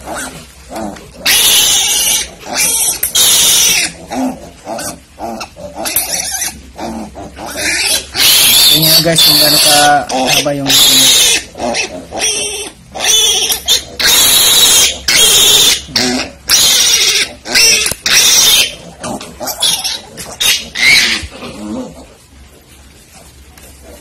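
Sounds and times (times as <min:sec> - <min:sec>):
piglet squealing shrilly: 0:01.2 - 0:04.0, 0:07.5 - 0:18.8, 0:19.5 - 0:21.3.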